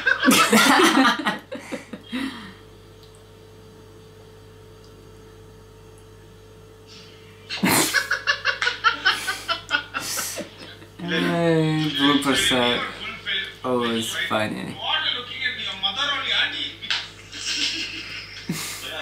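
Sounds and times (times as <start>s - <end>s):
man and woman laughing: 0.0s - 2.4s, 7.5s - 12.9s, 16.9s - 19.0s
faint steady hum: 0.0s - 19.0s.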